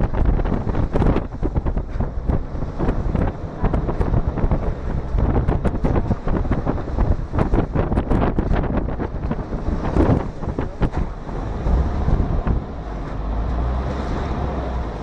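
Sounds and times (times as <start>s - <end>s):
water spray splashing along hull: 0.0s - 15.0s
wind buffeting the microphone: 0.0s - 15.0s.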